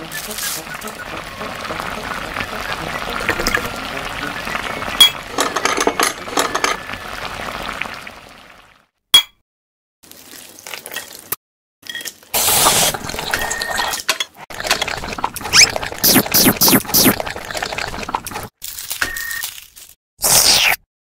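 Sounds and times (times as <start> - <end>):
liquid bubbling and hissing: 0.3 - 5.4, 12.4 - 13.8, 14.5 - 18.5.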